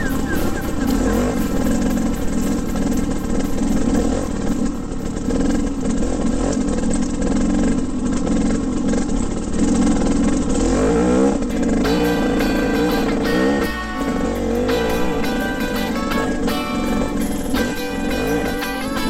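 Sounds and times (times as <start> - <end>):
music: 0.0 - 5.0, 11.5 - 19.0
dirt bike engine running: 0.0 - 19.0.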